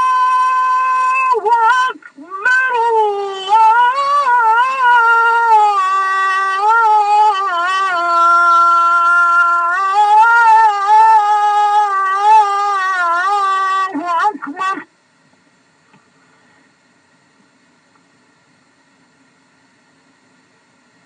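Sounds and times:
man chanting call to prayer: 0.0 - 14.9.

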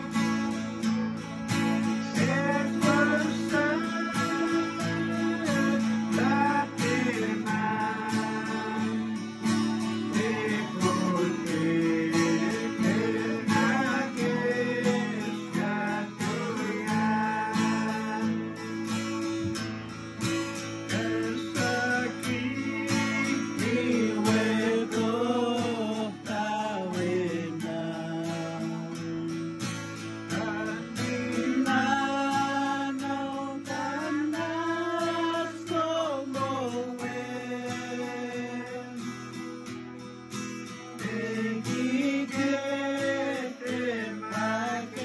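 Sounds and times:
acoustic guitars strumming: 0.0 - 45.0
person singing gospel song: 1.9 - 18.9, 20.8 - 29.5, 30.1 - 39.5, 40.8 - 45.0.

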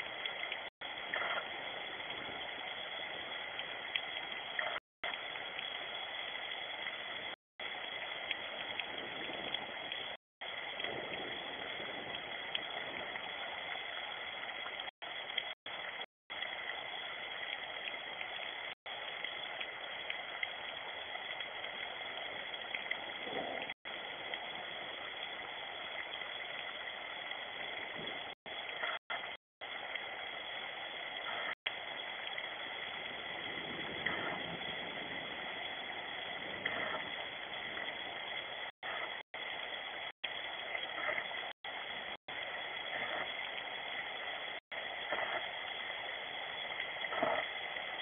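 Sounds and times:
steady rain falling: 8.3 - 14.2, 31.3 - 39.8.

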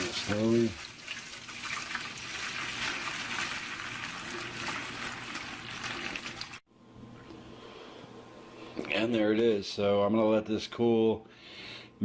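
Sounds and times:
broth pouring into a metal pan: 0.0 - 6.6.

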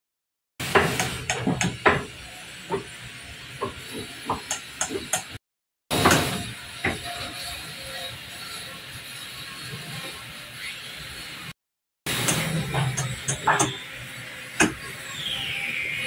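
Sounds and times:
knocks and clicks: 0.6 - 2.1, 3.6 - 6.3, 12.1 - 13.8.

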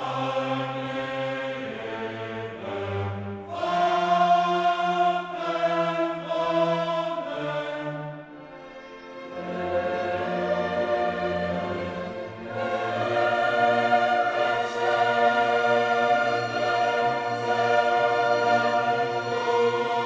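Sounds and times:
choir singing held chords: 0.0 - 20.0
orchestra playing: 7.6 - 20.0.

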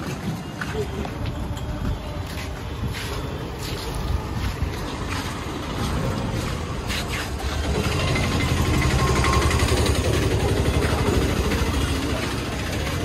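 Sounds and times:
small engine running at low revs: 7.5 - 13.0.

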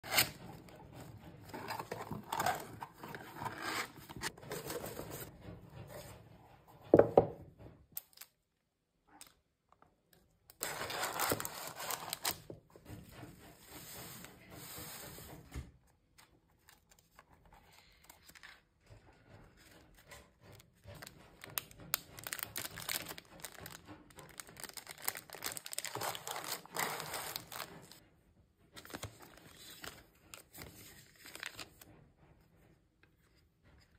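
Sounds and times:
cardboard box folded and scraped: 0.0 - 5.3, 10.6 - 12.5, 24.3 - 28.0, 28.8 - 31.7
shredded paper rustling: 10.6 - 12.5, 21.5 - 28.0
plastic sachets crinkling: 22.1 - 28.0.

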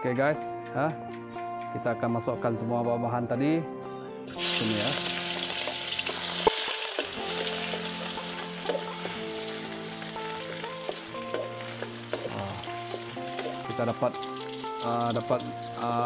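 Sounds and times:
food sizzling in hot oil: 4.3 - 16.0.

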